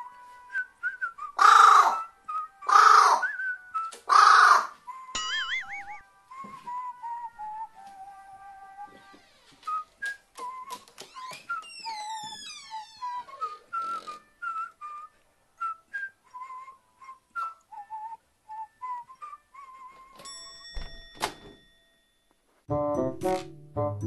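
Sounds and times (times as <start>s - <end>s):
whistled tune: 0.0s - 4.0s, 4.8s - 20.9s
ringing chime: 5.2s - 6.0s, 20.2s - 22.4s.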